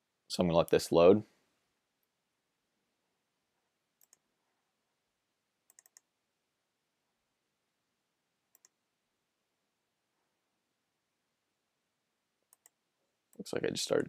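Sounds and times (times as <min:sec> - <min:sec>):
mouse clicks: 0:04.0 - 0:04.3, 0:05.7 - 0:06.1, 0:08.5 - 0:08.8, 0:12.5 - 0:13.4.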